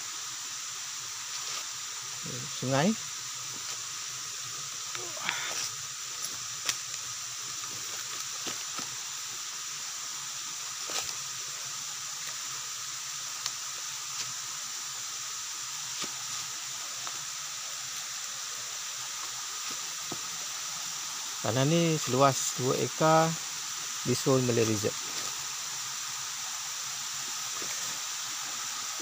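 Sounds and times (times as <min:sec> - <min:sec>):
footsteps on dry leaves and twigs: 0:07.6 - 0:09.0.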